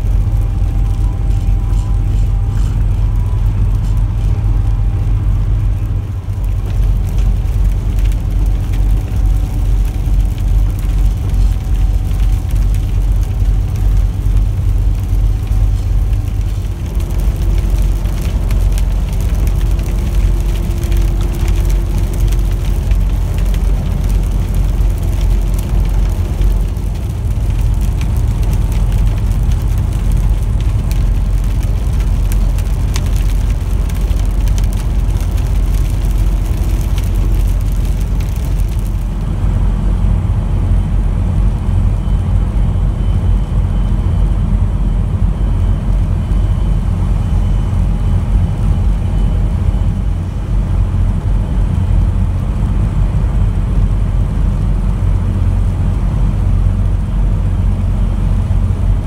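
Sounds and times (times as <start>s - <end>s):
truck engine and tyres droning: 0.0s - 59.0s
crackly wet hiss: 6.3s - 39.2s.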